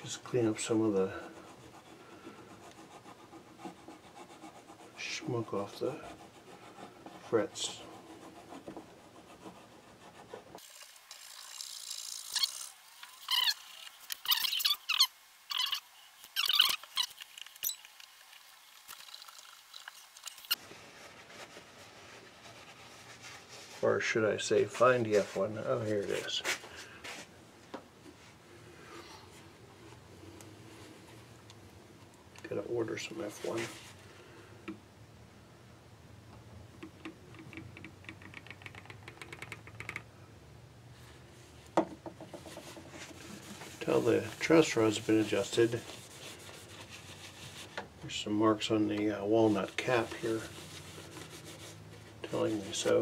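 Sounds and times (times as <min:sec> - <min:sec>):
small clicks and taps: 0:36.3 - 0:40.1
eraser scrubbing guitar frets: 0:43.2 - 0:47.3, 0:49.3 - 0:53.0.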